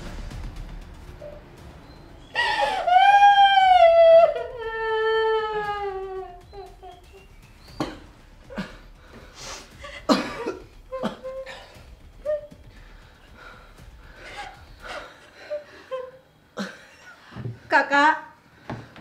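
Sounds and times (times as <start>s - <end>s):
man coughing and gasping: 9.7s - 11.9s.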